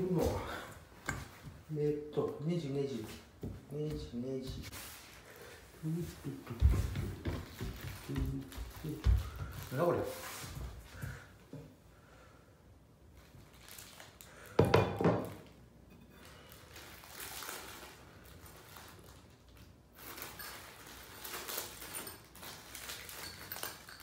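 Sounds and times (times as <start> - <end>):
rustling: 0.0 - 11.3.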